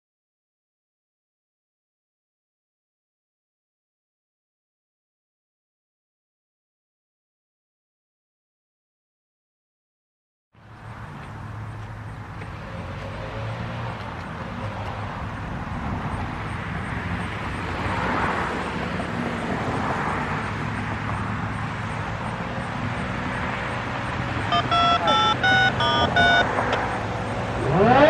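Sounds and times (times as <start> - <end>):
road traffic rumble: 10.6 - 28.0
vehicle passing: 10.6 - 28.0.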